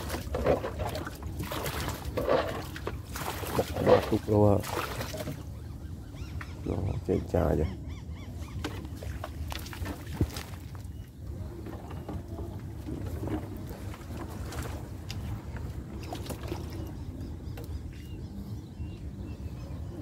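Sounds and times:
reeds scraping along boat hull: 0.0 - 5.4, 8.6 - 17.0
low rumble of water and wind: 0.0 - 20.0.

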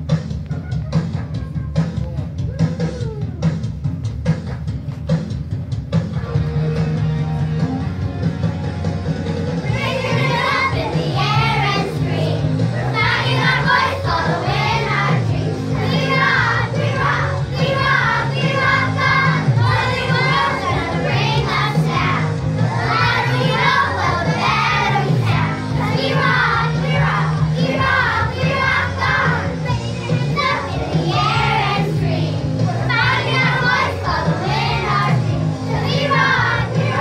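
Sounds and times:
recorded backing music: 0.0 - 37.0
steady bass line: 5.2 - 37.0
children's choir singing: 9.6 - 37.0.

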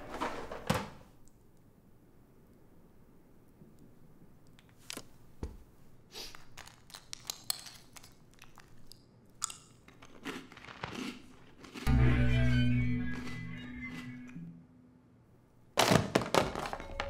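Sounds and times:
crunchy chewing: 6.5 - 11.9.

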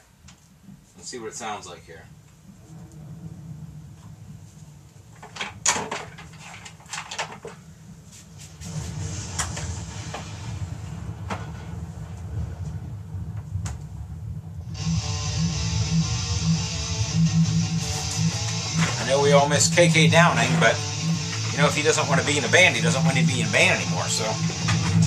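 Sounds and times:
low hum: 1.9 - 6.8, 7.6 - 25.0
heavy metal guitar music: 14.7 - 25.0.

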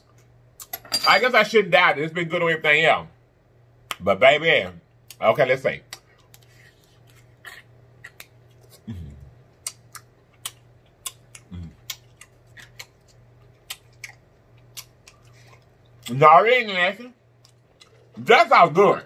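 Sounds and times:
faint steady hum: 0.0 - 19.0
man chewing with wet smacks: 5.9 - 16.1, 17.3 - 18.2
man humming: 8.8 - 9.4, 11.4 - 11.9.

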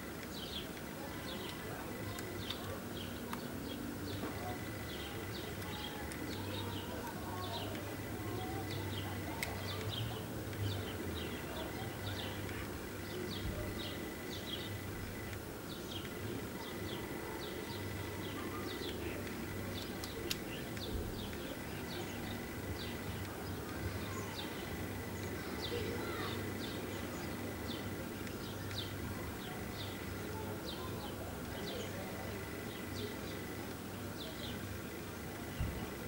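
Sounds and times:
small birds chirping: 0.0 - 36.0
steady low hum: 0.0 - 36.0.

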